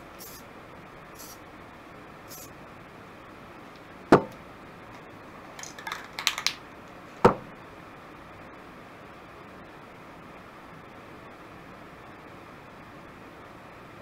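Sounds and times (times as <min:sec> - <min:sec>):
spray can rattling: 0:00.2 - 0:00.4, 0:05.6 - 0:06.6
spray cans knocking on wooden table: 0:04.1 - 0:04.4.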